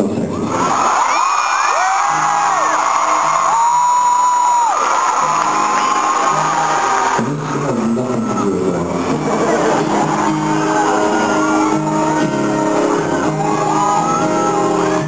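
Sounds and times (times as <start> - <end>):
audience shouting and whooping: 0.3 - 15.0
acoustic guitar: 3.2 - 15.0.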